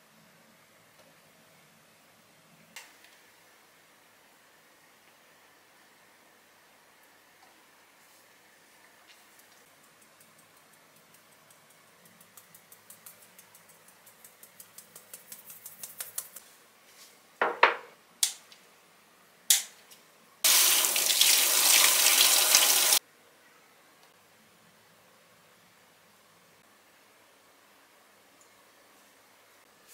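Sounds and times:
faucet running over hands: 20.5s - 23.0s.

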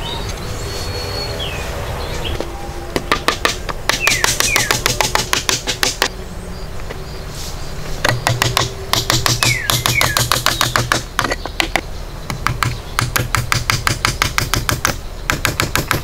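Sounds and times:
hammering nails into wood: 3.0s - 6.1s, 8.0s - 16.0s.

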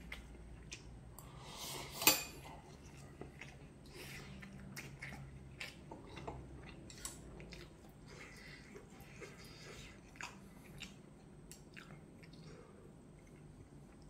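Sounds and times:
slurping from a spoon: 1.2s - 3.0s.

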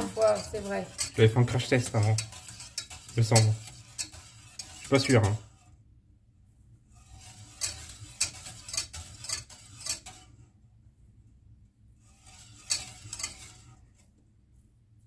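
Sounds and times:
whisk scraping a metal saucepan: 0.0s - 5.8s, 6.9s - 10.6s, 12.0s - 14.2s.

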